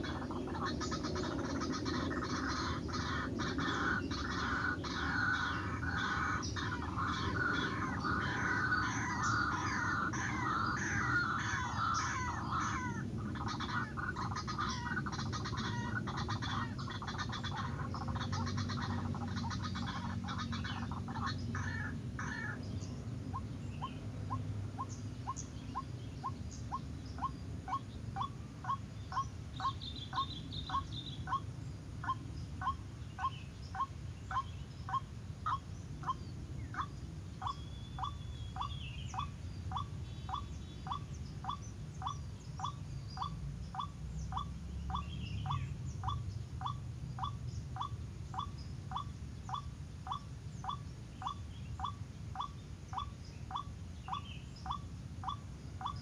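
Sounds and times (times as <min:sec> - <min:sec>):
small birds chirping: 0:00.0 - 0:56.0
waterhen calling: 0:00.0 - 0:56.0.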